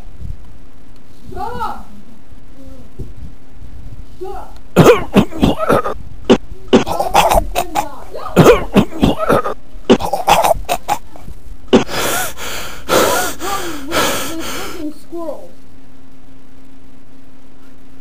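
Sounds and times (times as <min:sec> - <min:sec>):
boys coughing and grunting: 0:04.8 - 0:06.0, 0:06.7 - 0:14.9
boy crying out strained: 0:06.8 - 0:08.0, 0:11.8 - 0:14.9.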